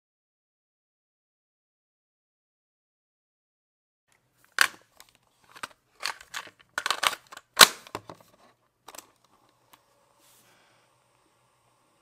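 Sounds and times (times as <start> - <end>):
cassette recorder plastic clicks: 4.5 - 8.2.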